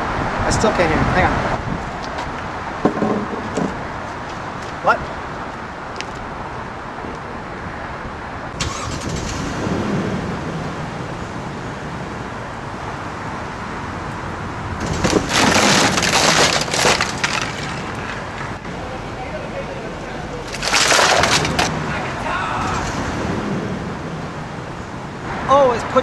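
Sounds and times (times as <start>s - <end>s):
wooden guitar cracking and splintering: 14.8s - 18.6s, 20.4s - 21.7s.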